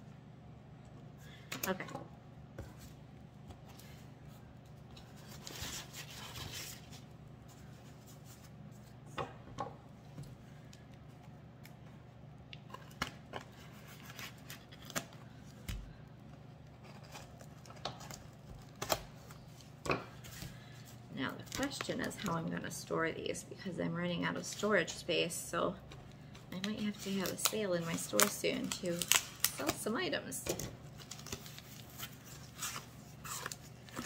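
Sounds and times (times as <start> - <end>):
steady low hum: 0.0 - 34.0
paper rustling: 3.6 - 9.0.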